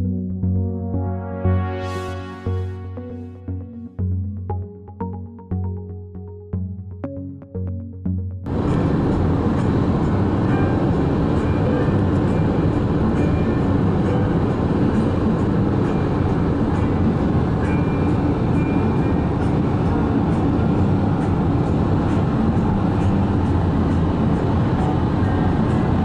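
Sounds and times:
vehicle ride rumble: 8.5s - 26.0s.

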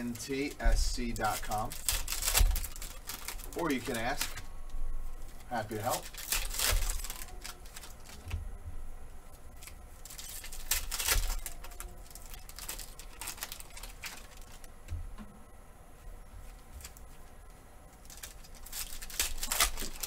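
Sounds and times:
foil wrapper crinkling: 0.0s - 8.4s, 9.4s - 14.8s, 17.9s - 20.0s.

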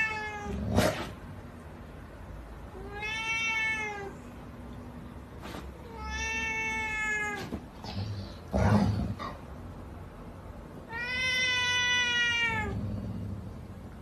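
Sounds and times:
cat meowing: 0.0s - 0.6s, 2.7s - 4.3s, 5.8s - 7.6s, 10.8s - 12.8s.

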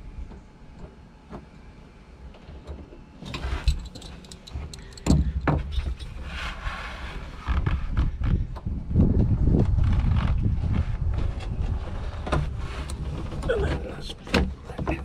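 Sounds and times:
clicks and knocks of parts: 2.3s - 6.1s
low rumble: 7.6s - 14.0s.

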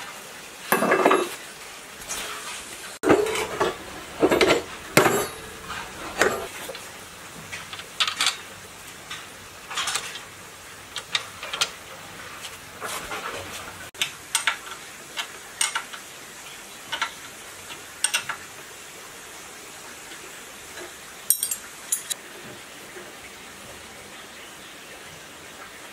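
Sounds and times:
metal clanks and clinks: 0.7s - 1.4s, 3.0s - 6.5s, 21.3s - 22.2s.

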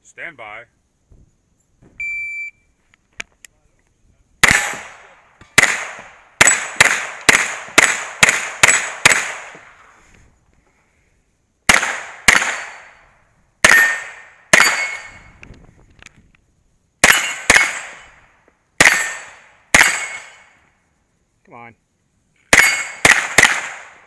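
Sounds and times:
carbine gunshots: 4.4s - 9.8s, 11.7s - 13.0s, 13.6s - 15.2s, 17.0s - 18.2s, 18.8s - 20.6s, 22.5s - 24.0s.

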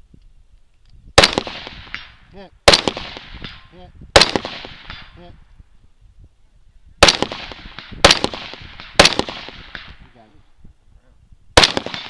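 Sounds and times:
rifle shots with echo: 1.2s - 5.2s, 7.0s - 10.1s, 11.6s - 12.0s.

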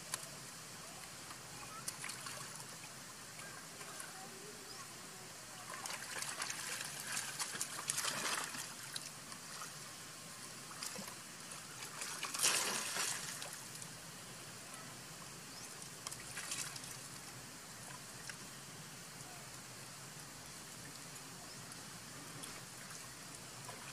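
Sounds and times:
steady water trickle: 0.0s - 23.9s
water splashing and sloshing: 1.0s - 4.2s, 5.5s - 14.0s, 15.8s - 18.5s, 20.7s - 23.9s.

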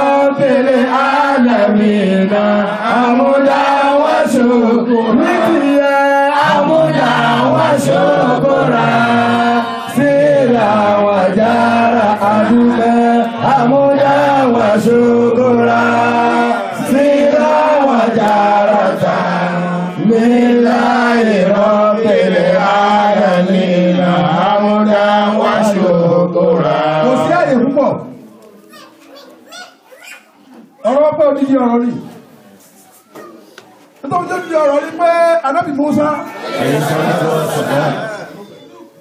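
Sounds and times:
man chanting devotional song over pa: 0.0s - 18.2s, 21.4s - 28.3s.

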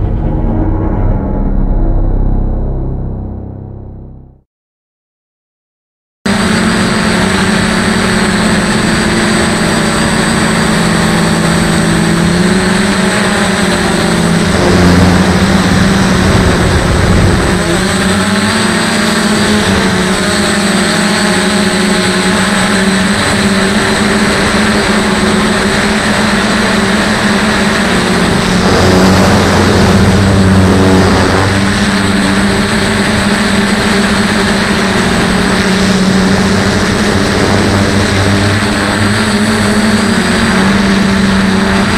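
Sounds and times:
drone propellers buzzing: 0.0s - 4.4s, 6.3s - 41.9s.

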